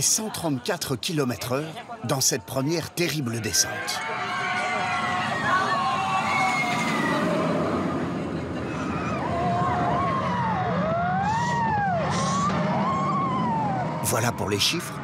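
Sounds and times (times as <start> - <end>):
roller coaster rumbling on track: 2.9 - 15.0
riders screaming: 3.9 - 7.8, 8.6 - 14.0.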